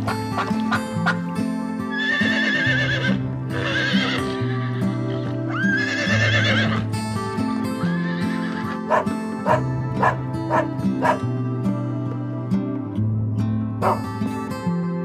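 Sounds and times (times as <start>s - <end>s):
background music: 0.0s - 15.0s
horses whinnying: 1.9s - 6.9s, 7.8s - 11.2s.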